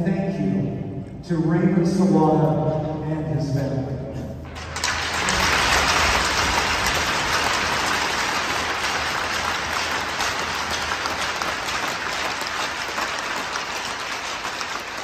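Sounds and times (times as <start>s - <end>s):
crowd applauding: 4.5s - 15.0s.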